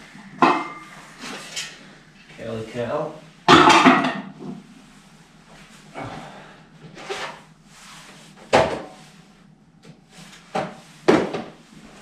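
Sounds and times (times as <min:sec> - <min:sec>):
objects clunking and knocking: 0:00.2 - 0:01.8, 0:03.5 - 0:04.7, 0:08.3 - 0:09.0, 0:09.8 - 0:12.0.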